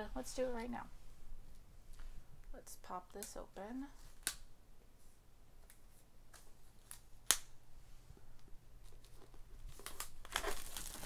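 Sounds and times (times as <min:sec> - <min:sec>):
paper rustling: 0:08.8 - 0:11.0.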